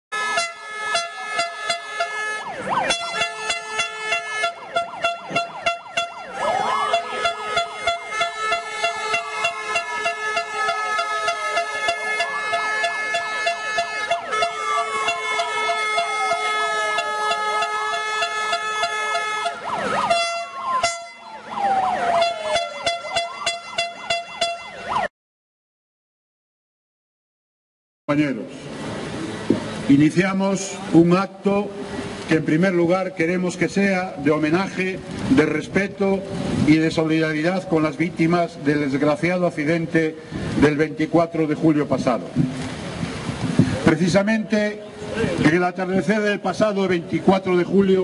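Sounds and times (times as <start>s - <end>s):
steady horn-like tones: 0.1s - 21.3s, 22.0s - 24.8s
siren sweeping up and down: 0.2s - 25.1s.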